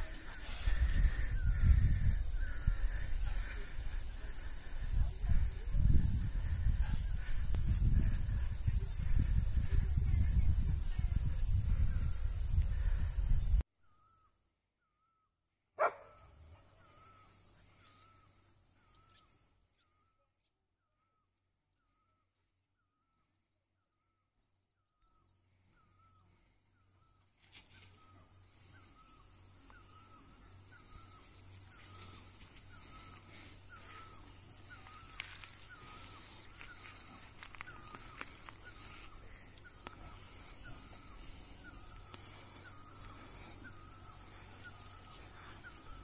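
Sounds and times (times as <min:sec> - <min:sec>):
high-pitched insect drone: 0:00.0 - 0:13.6, 0:26.9 - 0:46.0.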